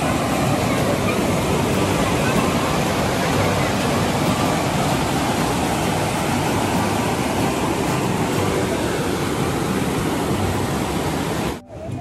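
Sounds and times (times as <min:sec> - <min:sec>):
river rapids rushing over rocks: 0:00.0 - 0:12.0.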